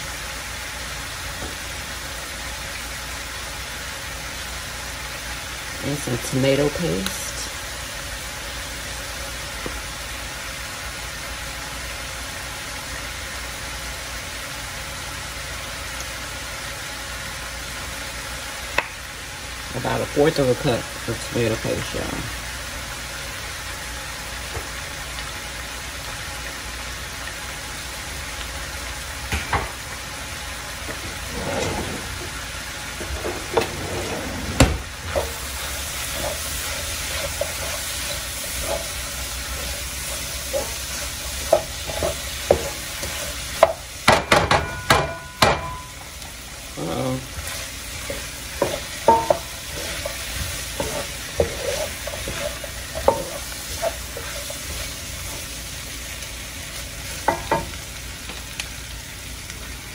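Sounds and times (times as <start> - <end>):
vegetables sizzling in a pan: 0.0 - 59.9
wooden spoon stirring and scraping: 30.8 - 43.8, 46.7 - 57.5.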